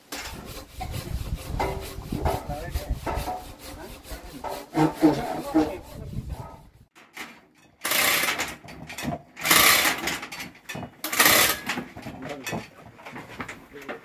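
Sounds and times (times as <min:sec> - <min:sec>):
hoist chain rattling: 0:07.6 - 0:12.7.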